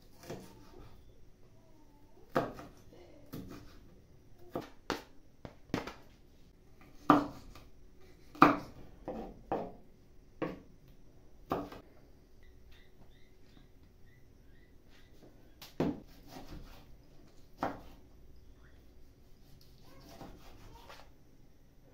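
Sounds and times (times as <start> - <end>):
knife chopping on wooden board: 2.3 - 3.8, 7.0 - 7.7, 8.3 - 9.8, 15.6 - 16.8, 17.6 - 18.0, 20.0 - 21.0.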